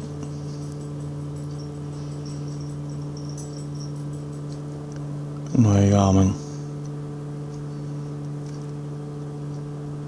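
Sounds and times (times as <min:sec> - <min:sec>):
low electrical hum: 0:00.0 - 0:10.0
faint high insect chirps: 0:00.2 - 0:04.6.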